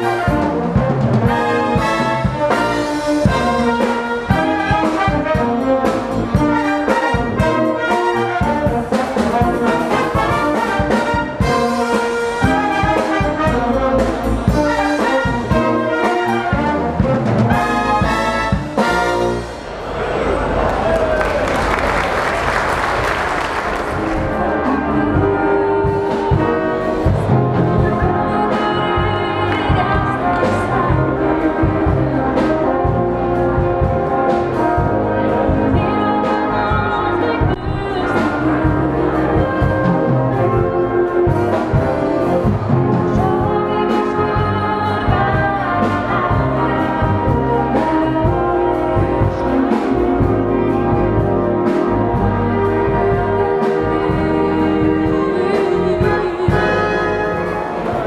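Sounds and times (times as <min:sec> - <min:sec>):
brass band playing: 0:00.0 - 0:58.0
woman singing into microphone: 0:27.4 - 0:32.0, 0:35.7 - 0:40.1, 0:43.1 - 0:47.6, 0:53.8 - 0:57.4.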